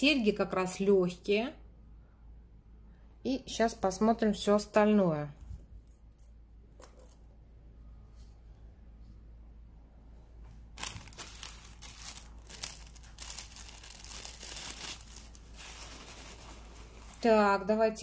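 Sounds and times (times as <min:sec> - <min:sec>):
packaging crinkling and crackling: 0:10.7 - 0:17.3.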